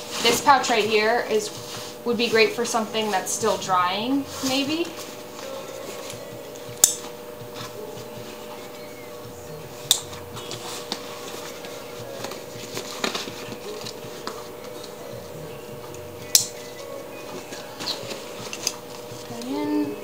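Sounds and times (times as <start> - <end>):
backpack fabric rustling: 0.0 - 6.4.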